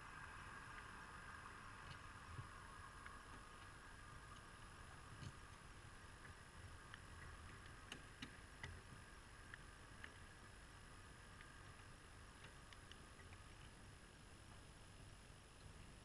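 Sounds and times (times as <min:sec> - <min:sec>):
low background hiss: 0:00.0 - 0:16.0
faint light clicks: 0:01.8 - 0:10.6, 0:11.3 - 0:13.9.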